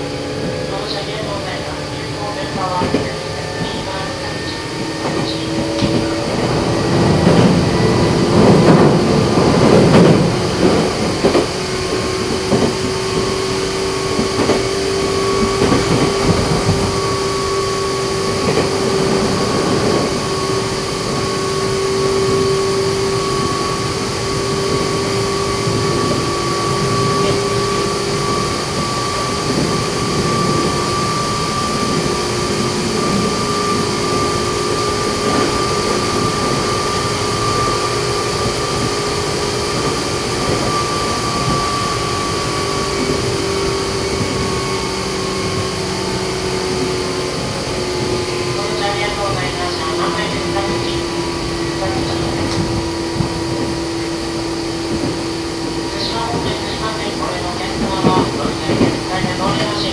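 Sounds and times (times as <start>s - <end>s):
electric train motor whine: 0.0s - 59.9s
train wheels rumbling on rails: 0.0s - 59.9s
wheels rattling clatter: 24.0s - 59.9s.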